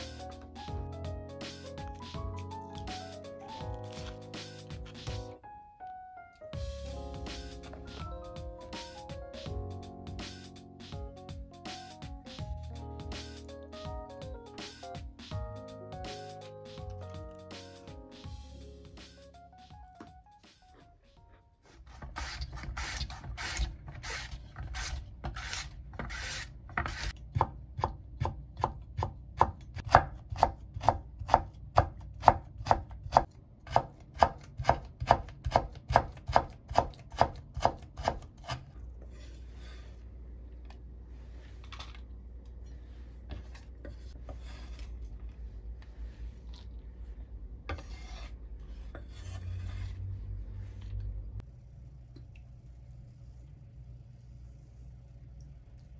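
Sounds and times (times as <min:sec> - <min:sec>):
knife chopping on wooden board: 0:21.9 - 0:38.6
scraping and handling sounds: 0:38.8 - 0:47.0.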